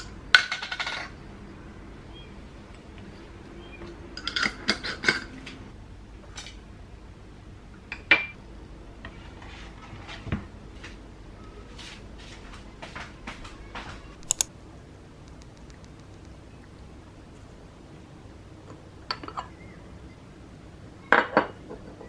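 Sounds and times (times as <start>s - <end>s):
glass and ceramic dishes clinking: 21.1s - 22.0s.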